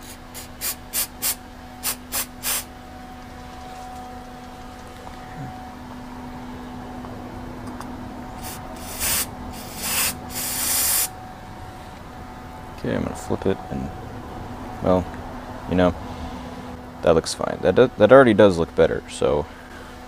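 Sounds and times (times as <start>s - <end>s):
aerosol can spraying: 0.0s - 2.7s, 8.4s - 11.1s.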